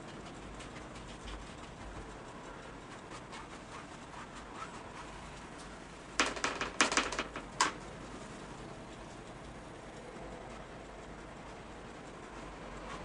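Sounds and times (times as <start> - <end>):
painting tools clattering: 6.2 - 7.8.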